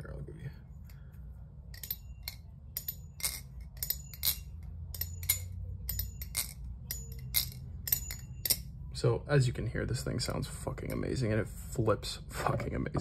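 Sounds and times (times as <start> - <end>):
butterfly knife metallic clacks: 1.8 - 8.7.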